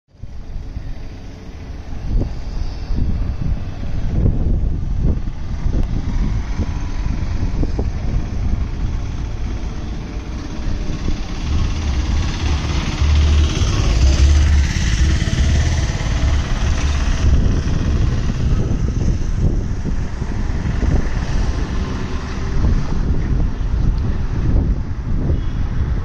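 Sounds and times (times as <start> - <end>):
wind buffeting microphone: 0.1 - 26.0
distant diesel locomotive rumble: 0.2 - 25.7.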